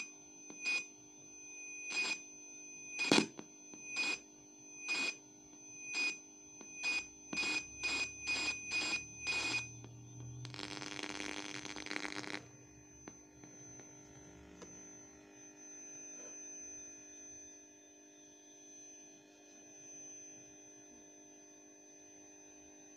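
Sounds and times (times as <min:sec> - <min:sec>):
faint steady hum: 0:00.0 - 0:19.7
electronic beeps from radio: 0:01.8 - 0:02.2, 0:02.9 - 0:04.2, 0:04.8 - 0:05.2, 0:05.8 - 0:12.6
high whine: 0:06.6 - 0:15.4
radio hiss: 0:10.4 - 0:12.5.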